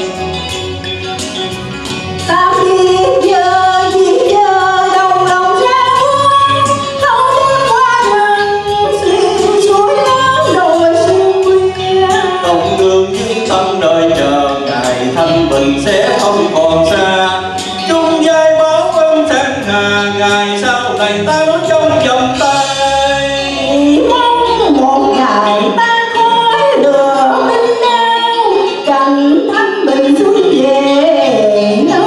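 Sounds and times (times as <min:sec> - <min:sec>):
instrumental backing music: 0:00.0 - 0:32.0
woman singing: 0:02.2 - 0:13.3, 0:23.4 - 0:32.0.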